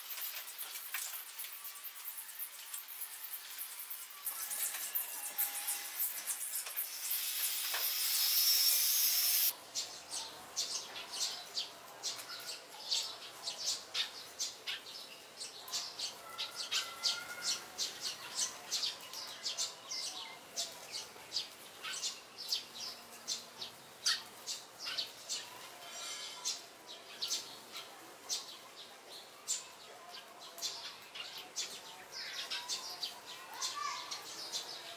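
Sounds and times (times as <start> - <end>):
loud steady hiss: 0.0 - 9.5
sparrows chirping: 3.6 - 34.9.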